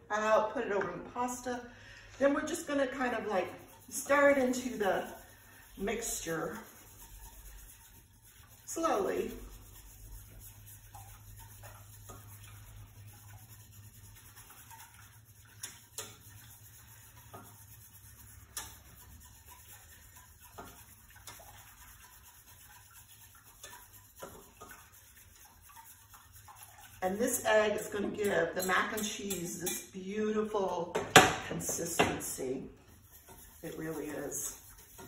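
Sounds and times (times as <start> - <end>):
spoon scraping pot: 2.4 - 30.2, 31.0 - 35.0
spoon clinking against pot: 28.2 - 29.9.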